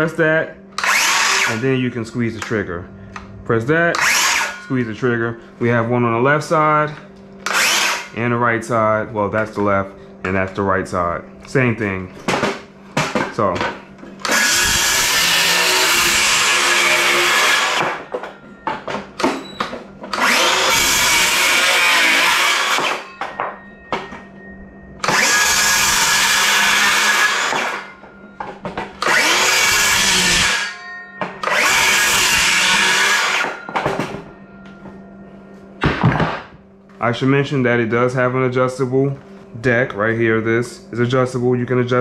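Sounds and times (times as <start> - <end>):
circular saw cutting wood: 0.7 - 1.9, 3.9 - 5.0, 7.4 - 8.2, 14.2 - 18.1, 20.0 - 23.3, 25.0 - 28.0, 29.0 - 33.9.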